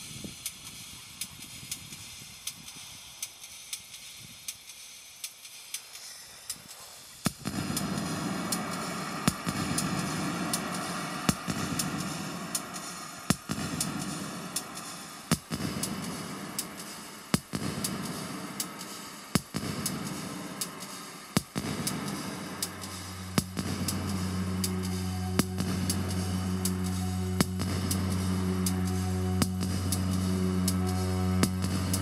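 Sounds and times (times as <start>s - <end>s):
noisy electronic drone: 7.3s - 32.0s.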